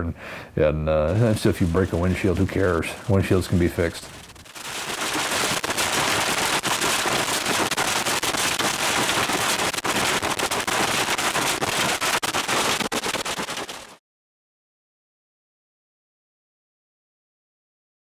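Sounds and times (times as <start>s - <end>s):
hailstones pelting car roof: 1.1s - 13.9s
steady rushing noise: 1.1s - 14.0s.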